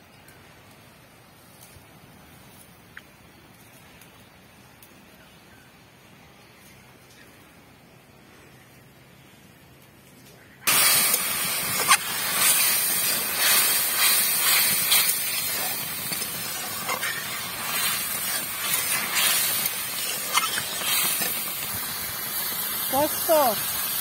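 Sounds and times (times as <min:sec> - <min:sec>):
gravy sizzling and bubbling: 0:10.6 - 0:24.0.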